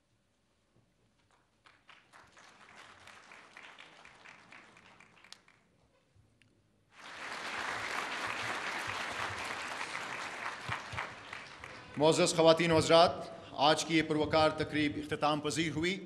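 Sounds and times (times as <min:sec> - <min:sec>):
audience applauding: 0:01.6 - 0:05.7, 0:07.0 - 0:12.7.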